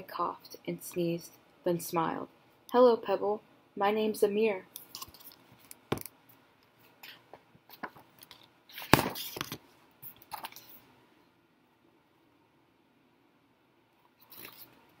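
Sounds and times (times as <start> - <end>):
paper pages rustling: 4.8 - 6.0, 7.0 - 10.8, 14.2 - 15.0.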